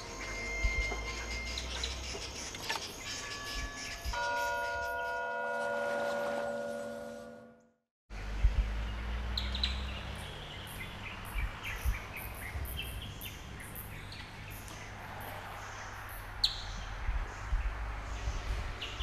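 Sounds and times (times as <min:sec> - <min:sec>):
birds chirping and calling: 0:00.0 - 0:05.2, 0:08.2 - 0:19.0
steady low rumble: 0:08.1 - 0:10.1.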